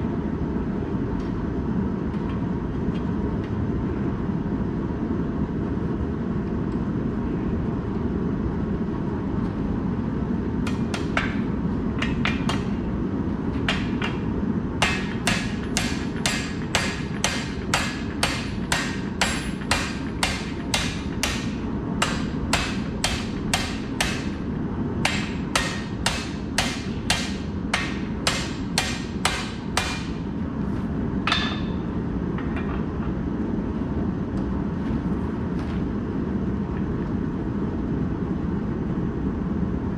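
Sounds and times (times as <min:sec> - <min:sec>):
hammer striking steel bar: 0:13.7 - 0:14.2, 0:14.8 - 0:24.4, 0:25.0 - 0:30.2, 0:31.3 - 0:31.8.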